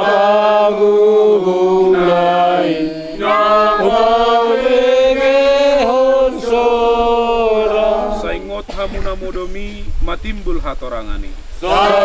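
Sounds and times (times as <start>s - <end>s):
group singing a hymn: 0.0s - 8.8s, 11.6s - 12.0s.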